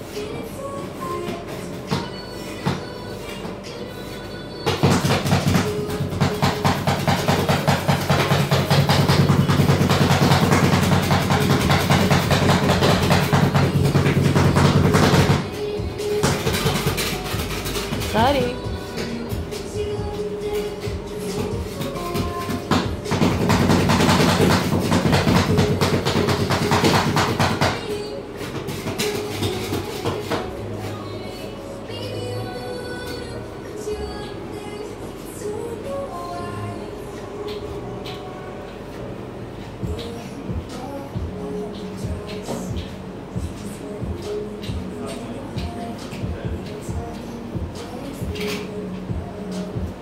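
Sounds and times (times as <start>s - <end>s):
steady low hum: 30.4s - 50.0s.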